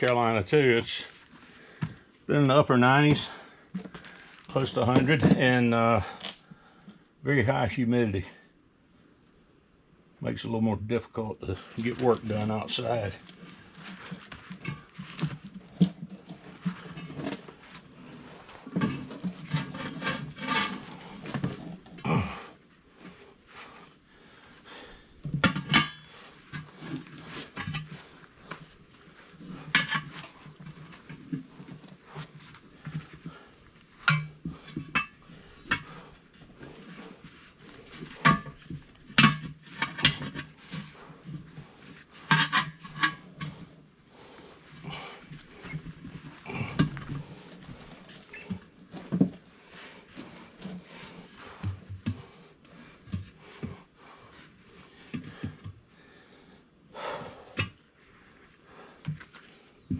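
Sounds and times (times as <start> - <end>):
hard breathing: 1.2 - 2.2, 13.2 - 39.2, 39.8 - 59.9
tire irons clanking on metal rim: 25.3 - 28.6, 29.4 - 37.1, 37.9 - 41.4.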